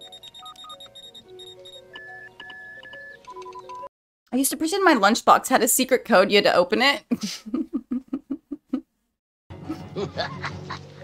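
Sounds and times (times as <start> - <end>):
background music: 0.0 - 3.9, 9.5 - 11.0.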